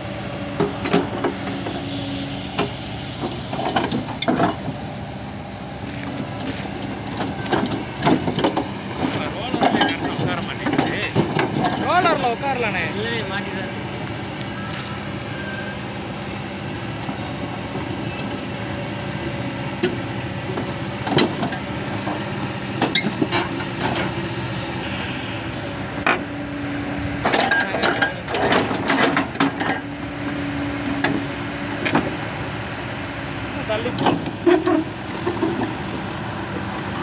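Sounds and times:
excavator diesel engine running: 0.0 - 37.0
hydraulics working: 0.0 - 37.0
metal track clanks: 2.6 - 4.8, 6.5 - 13.3, 20.6 - 24.2, 27.2 - 29.9, 33.7 - 35.8.

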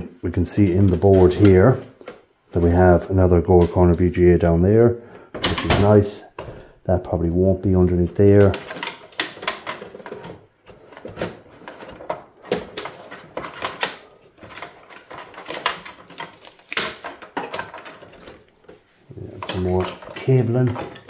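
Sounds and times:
cables rustling: 0.0 - 4.8, 7.1 - 21.0
clicks and knocks in metal case: 8.1 - 21.0.

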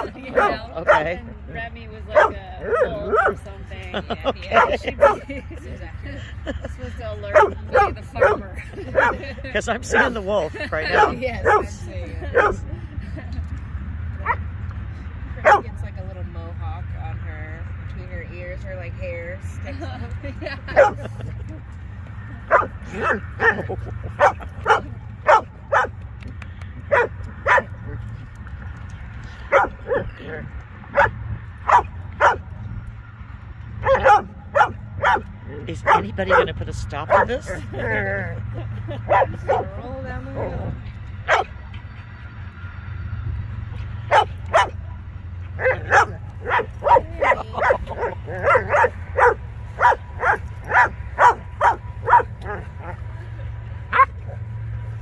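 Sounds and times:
dog barking: 0.0 - 1.2, 2.2 - 3.4, 4.6 - 5.2, 7.3 - 8.4, 9.0 - 9.2, 10.9 - 11.7, 12.4 - 12.6, 15.4 - 15.6, 20.8 - 21.0, 22.5 - 25.9, 26.9 - 27.7, 29.5 - 30.1, 30.9 - 32.4, 33.8 - 36.4, 39.1 - 39.7, 41.3 - 41.5, 44.1 - 44.8, 45.6 - 52.7.

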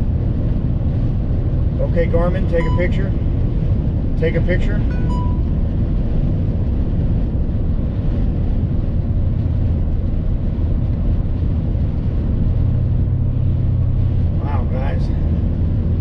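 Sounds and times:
low engine drone: 0.0 - 16.0
tyres on snowy road: 0.0 - 16.0
dash cam beep: 2.4 - 3.3, 4.6 - 5.6.

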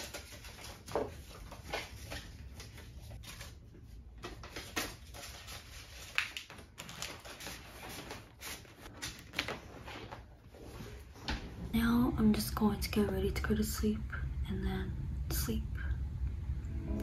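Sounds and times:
paper rustling: 0.0 - 11.1
low room hum: 0.0 - 17.0.

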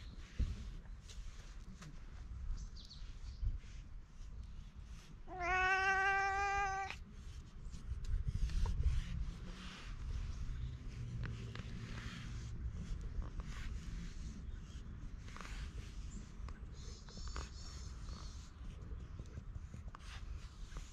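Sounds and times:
cat meowing: 5.3 - 7.0.

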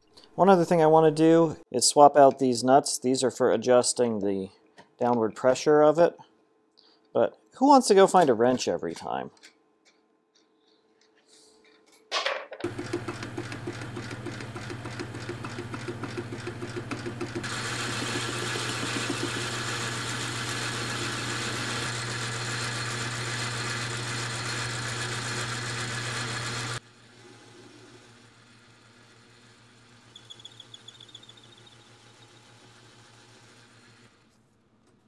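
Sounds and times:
low motor hum: 12.6 - 34.2
metal lathe cutting: 12.7 - 27.1.

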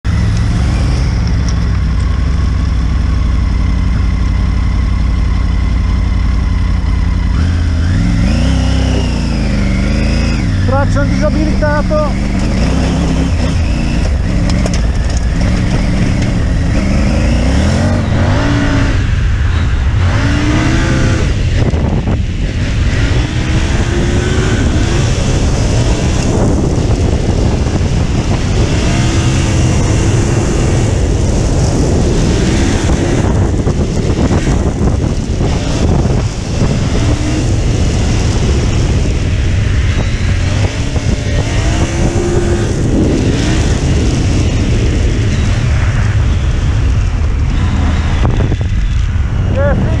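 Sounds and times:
motorcycle engine accelerating: 0.0 - 50.0
wind rumble on microphone: 0.0 - 50.0.

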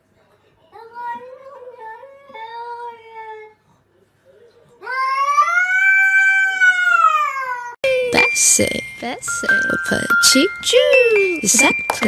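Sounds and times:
cat yowling: 4.8 - 7.8.

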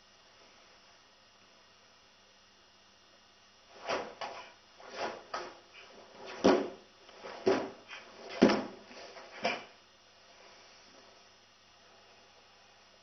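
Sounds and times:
bare feet slapping wooden floor: 3.7 - 9.7.

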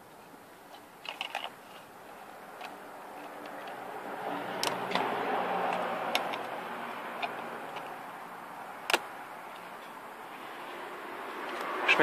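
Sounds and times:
low steady hiss: 0.0 - 4.2
plastic parts clicking: 0.7 - 1.8.

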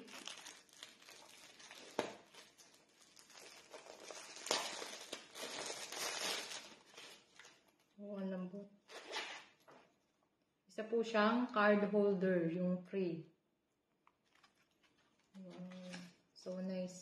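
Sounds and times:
packaging rustling and crinkling: 0.0 - 8.0, 14.2 - 16.2.

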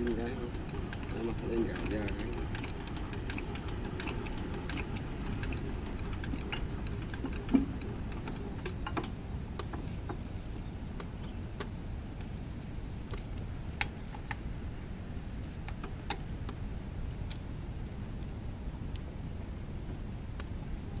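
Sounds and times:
light metal clicks and ticks: 0.0 - 10.2
steady low rumble: 0.0 - 21.0.

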